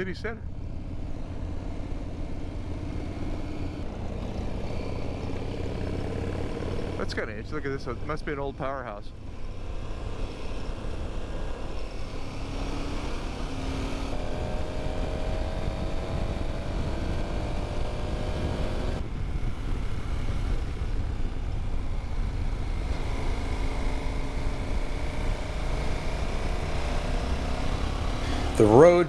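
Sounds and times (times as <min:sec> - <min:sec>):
motorcycle engine running: 0:00.0 - 0:29.0
wind rushing over microphone: 0:14.3 - 0:22.9.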